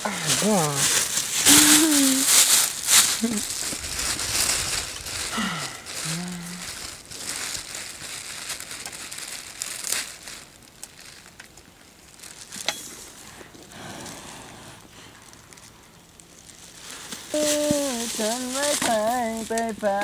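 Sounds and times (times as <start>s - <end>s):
low hum of a voice: 0.0s - 2.3s, 5.3s - 6.8s, 17.3s - 20.0s
plastic bag crinkling: 0.0s - 20.0s.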